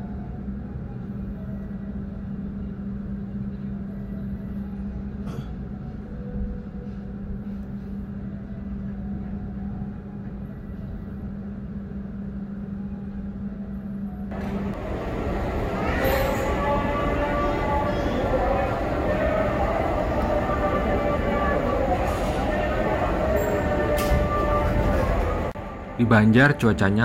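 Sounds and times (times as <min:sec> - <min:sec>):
train running gear rumble: 0:04.8 - 0:26.0.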